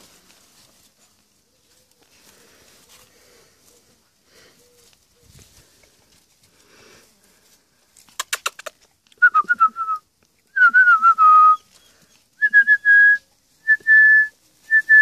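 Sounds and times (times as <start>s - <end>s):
sharp clicks: 8.1s - 9.2s
person whistling: 9.2s - 11.7s, 12.4s - 15.0s.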